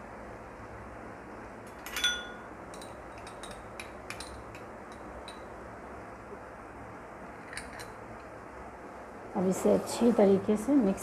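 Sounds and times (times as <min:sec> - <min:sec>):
steady low hum: 0:00.0 - 0:11.0
spoon clinking against container: 0:01.8 - 0:05.5.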